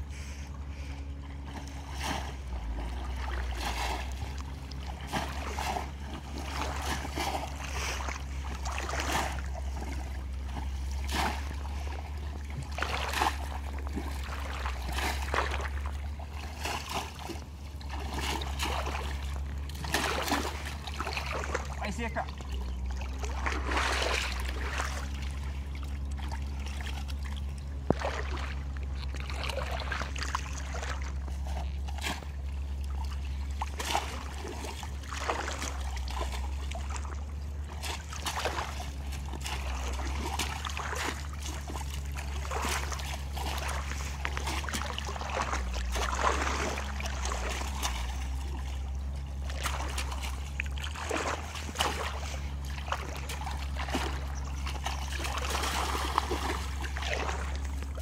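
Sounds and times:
shallow water splashing: 0:00.0 - 0:58.0
steady low rumble: 0:00.0 - 0:58.0.

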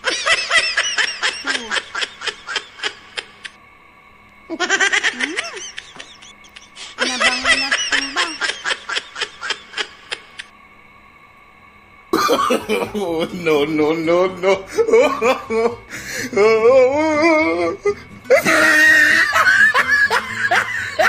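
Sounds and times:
high-pitched laughter: 0:00.0 - 0:03.6, 0:04.5 - 0:10.5, 0:18.3 - 0:21.0.

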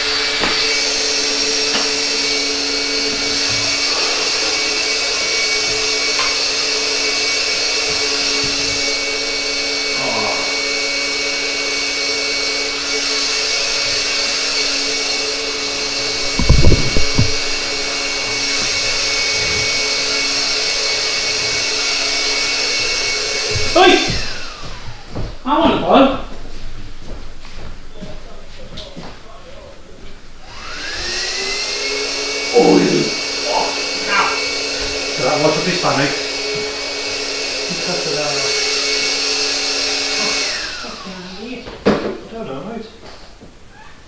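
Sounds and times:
electric motor blower whining: 0:00.0 - 0:25.2, 0:30.4 - 0:41.7
loud thumps: 0:16.2 - 0:17.8.

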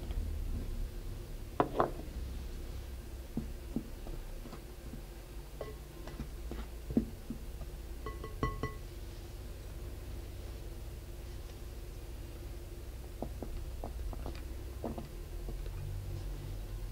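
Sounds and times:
taps ringing glass bowl: 0:08.0 - 0:08.8.

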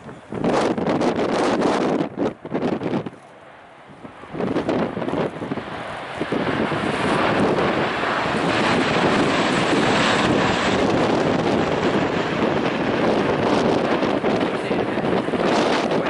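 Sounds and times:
aircraft engine rumble: 0:00.0 - 0:16.0
wind buffeting microphone: 0:00.0 - 0:16.0.

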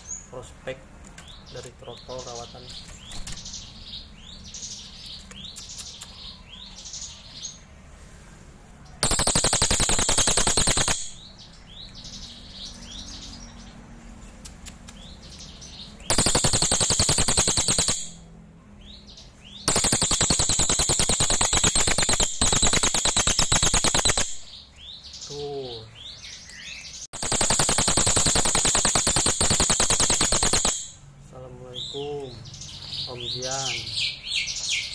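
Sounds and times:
soft bird chirps: 0:00.0 - 0:34.9
bird mechanical rattle: 0:09.0 - 0:11.2, 0:16.1 - 0:18.2, 0:19.7 - 0:24.4, 0:27.2 - 0:31.0.

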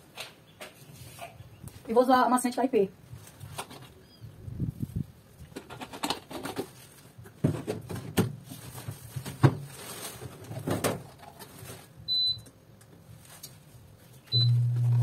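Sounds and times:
knocks and clatter of handling: 0:05.5 - 0:11.8.

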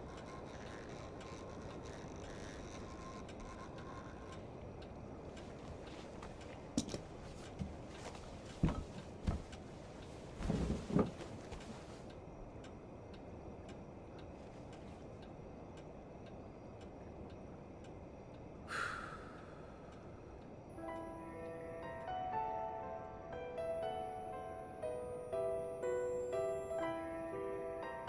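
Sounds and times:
clock ticking faintly: 0:00.0 - 0:06.8, 0:11.5 - 0:18.6.

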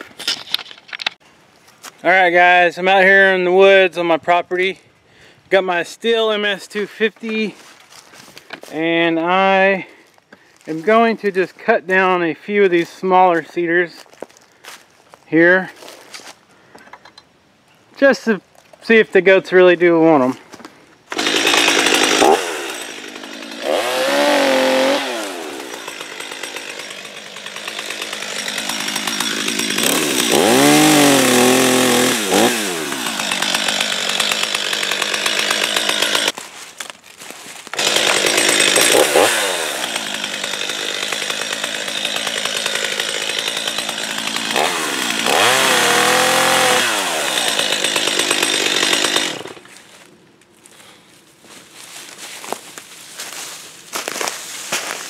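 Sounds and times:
chainsaw cutting wood: 0:21.1 - 0:36.6, 0:37.6 - 0:50.1.

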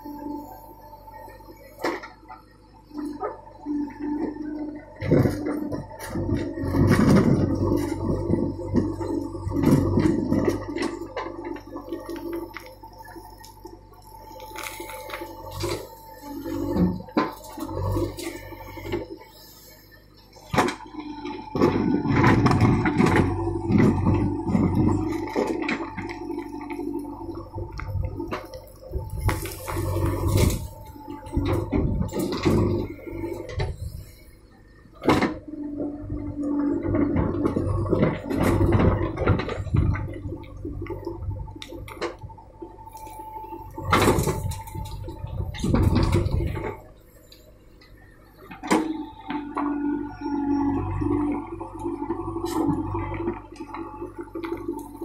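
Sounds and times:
backhoe engine whining: 0:00.0 - 0:55.0
bucket crunching soil and stones: 0:05.0 - 0:19.3, 0:20.4 - 0:33.9.

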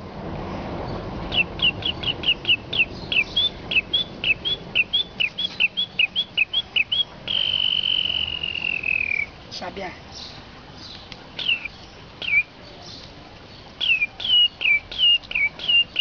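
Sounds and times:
man whistling birdsong: 0:01.3 - 0:09.4, 0:11.4 - 0:12.5, 0:13.8 - 0:16.0.

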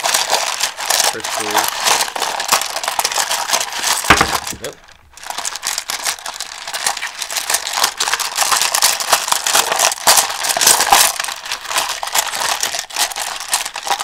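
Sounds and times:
stones rattling in plastic tub: 0:00.0 - 0:05.9.

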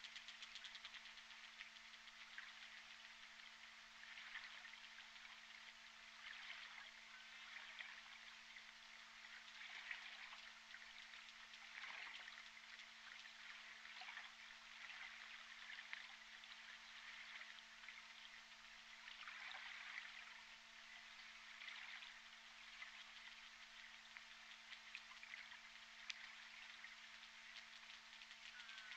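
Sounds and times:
clusters of clicks: 0:00.0 - 0:02.5, 0:27.2 - 0:28.9
low electrical hum: 0:00.0 - 0:28.9.

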